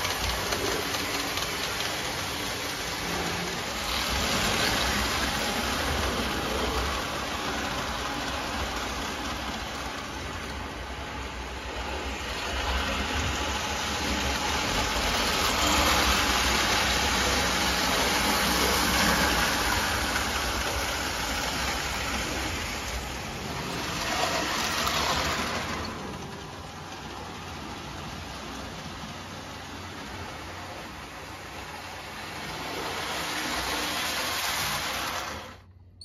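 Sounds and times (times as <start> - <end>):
toy train wheels clattering: 0.0 - 11.0, 12.4 - 29.2.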